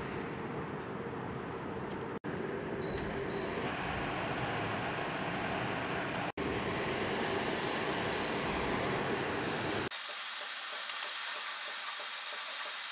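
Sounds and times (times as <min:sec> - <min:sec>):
air cooler fan rushing: 0:00.0 - 0:09.9.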